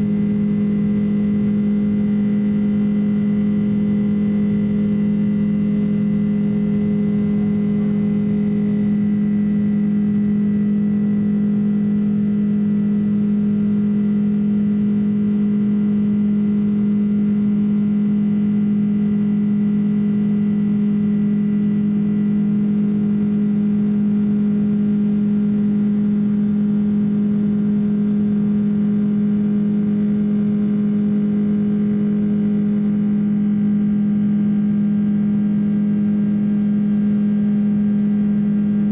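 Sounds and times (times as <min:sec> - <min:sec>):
jet engine drone in cabin: 0:00.0 - 0:38.9.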